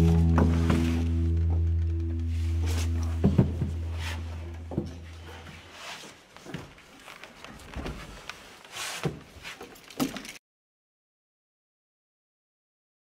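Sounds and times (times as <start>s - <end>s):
background music: 0.0s - 5.2s.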